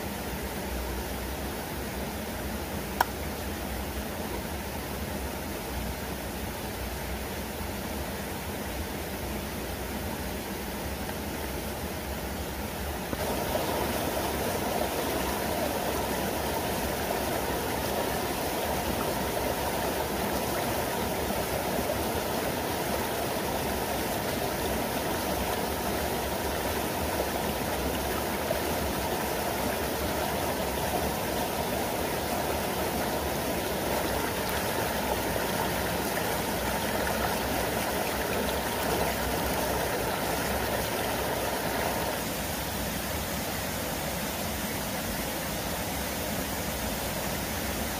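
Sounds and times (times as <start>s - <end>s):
waterfall rushing over rocks: 13.0s - 47.9s.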